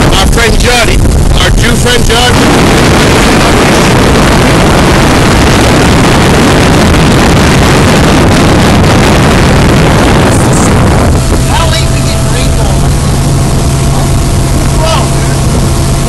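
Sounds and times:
motorboat engine drone: 0:00.0 - 0:16.0
wind buffeting microphone: 0:00.0 - 0:16.0.

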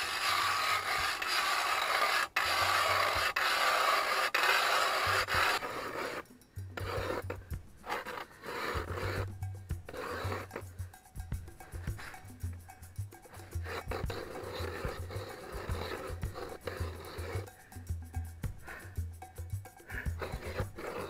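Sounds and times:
ice auger rasping scrape: 0:00.0 - 0:06.2, 0:06.8 - 0:10.7, 0:13.3 - 0:17.6, 0:19.9 - 0:21.0.

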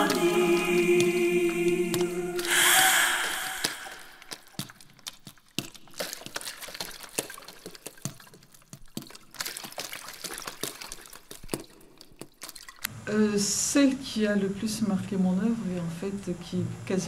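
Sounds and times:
water dripping: 0:01.9 - 0:12.9.

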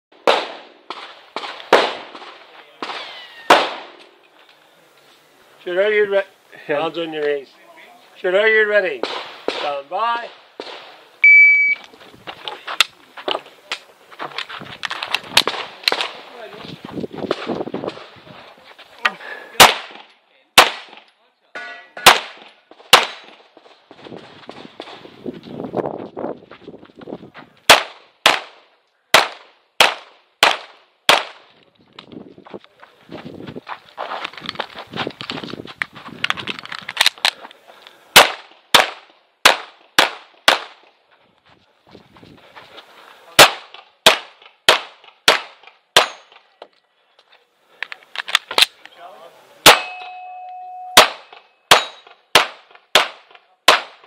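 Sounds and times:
pistol shots: 0:00.2 - 0:04.0, 0:09.0 - 0:09.8, 0:19.6 - 0:21.0, 0:22.0 - 0:23.4, 0:27.7 - 0:31.5, 0:38.2 - 0:40.8, 0:43.4 - 0:46.4, 0:49.6 - 0:50.0, 0:51.0 - 0:54.0
rustling noise: 0:03.9 - 0:08.3, 0:11.8 - 0:19.0, 0:22.7 - 0:27.7, 0:31.4 - 0:38.0, 0:40.8 - 0:43.4
short ringing tone: 0:11.2 - 0:11.8, 0:49.8 - 0:51.7.

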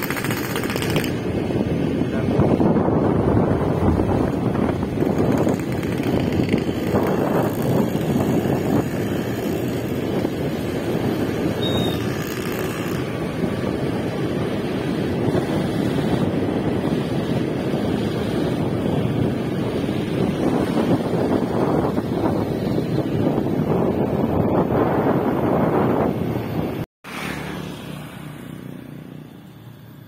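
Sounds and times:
wind rush over microphone: 0:00.0 - 0:26.8
motorcycle engine running: 0:03.7 - 0:24.4.

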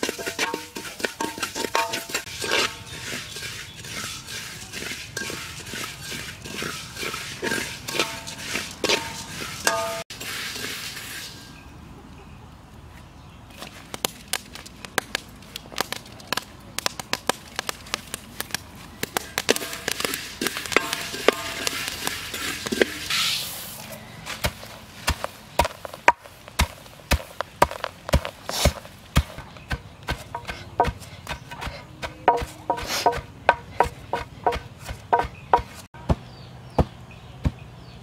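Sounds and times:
rice grains rattling in metal pan: 0:00.0 - 0:10.4, 0:19.5 - 0:23.1
wooden pestle pounding: 0:25.1 - 0:36.3.

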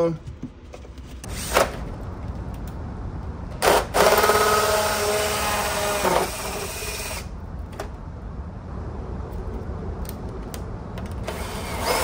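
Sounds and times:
cordless drill motor whine: 0:03.6 - 0:07.3, 0:11.2 - 0:12.0.

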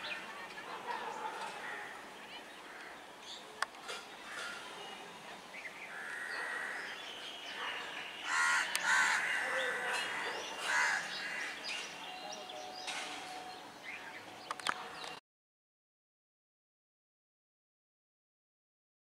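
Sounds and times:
railway station background noise: 0:00.0 - 0:15.2
crows cawing: 0:01.6 - 0:02.0, 0:04.2 - 0:04.6, 0:05.9 - 0:07.0, 0:08.2 - 0:11.7.

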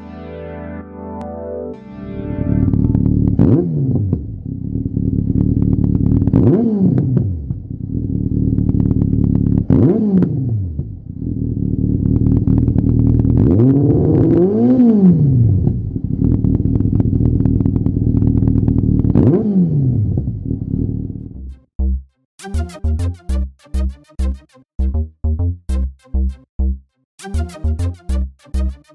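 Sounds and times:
motorcycle engine idling and revving: 0:02.6 - 0:21.9.

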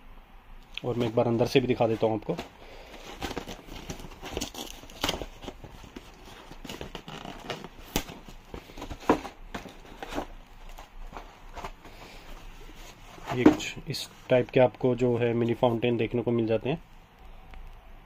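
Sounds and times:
cardboard scraping and rustling: 0:00.9 - 0:14.6.

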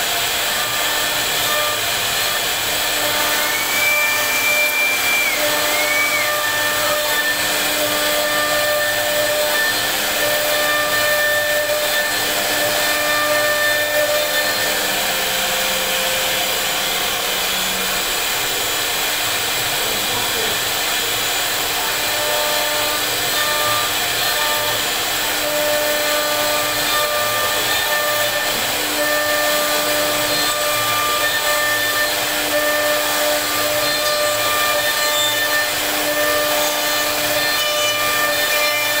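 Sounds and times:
router bit cutting wood: 0:00.0 - 0:39.0.

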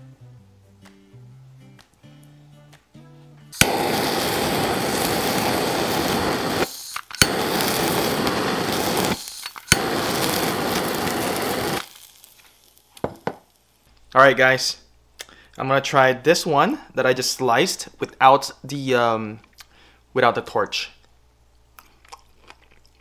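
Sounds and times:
torch flame rushing: 0:03.6 - 0:12.9
butane torch clicking alight: 0:03.6 - 0:14.1.

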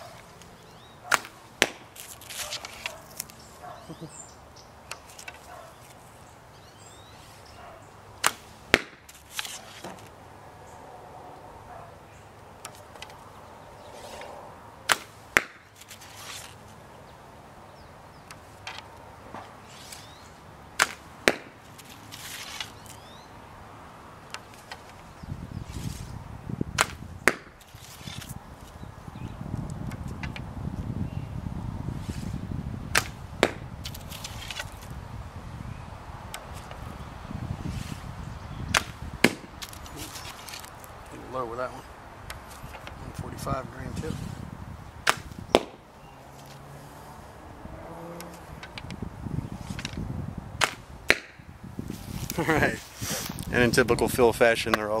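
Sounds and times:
arrow striking target: 0:01.1 - 0:02.9, 0:08.2 - 0:10.1, 0:14.9 - 0:15.6, 0:20.8 - 0:22.7, 0:26.7 - 0:28.2, 0:32.9 - 0:34.7, 0:38.7 - 0:39.8, 0:45.0 - 0:45.8, 0:50.6 - 0:51.4.

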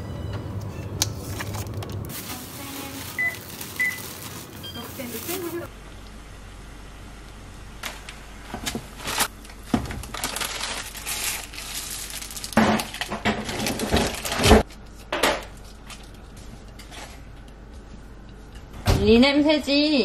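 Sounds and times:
sachets crinkling and rustling: 0:01.2 - 0:05.7, 0:09.0 - 0:14.7.

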